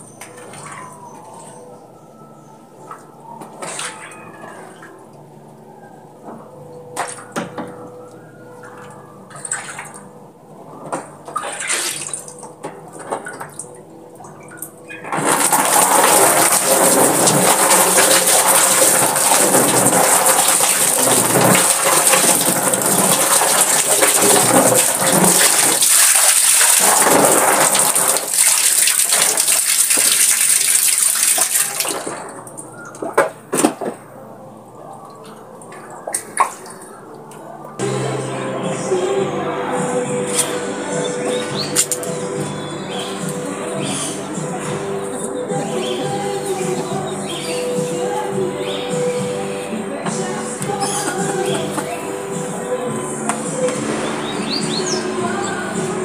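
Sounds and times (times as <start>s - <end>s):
water running and splashing: 15.2s - 32.4s.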